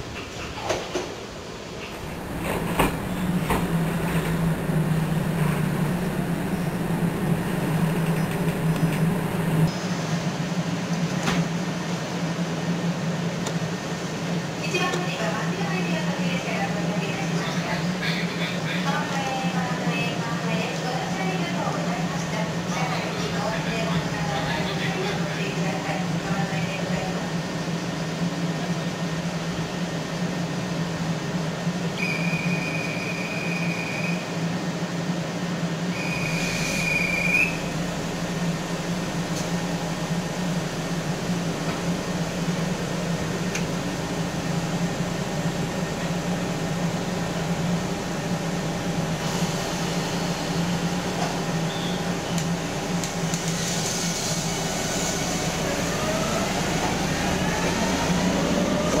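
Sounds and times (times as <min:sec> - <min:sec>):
electric train humming: 0:01.2 - 0:59.0
train motor whine: 0:01.9 - 0:09.7.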